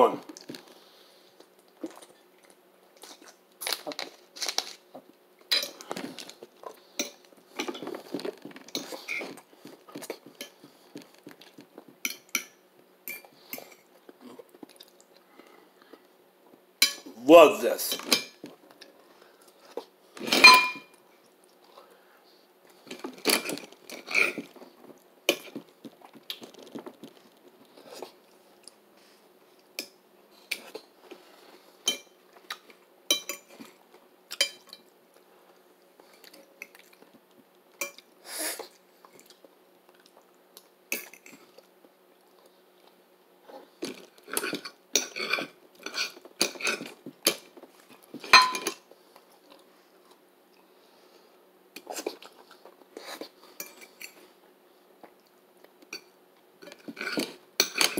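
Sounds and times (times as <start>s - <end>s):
cutlery clinking on a plate: 20.3s - 21.0s, 48.2s - 48.8s, 56.0s - 57.9s.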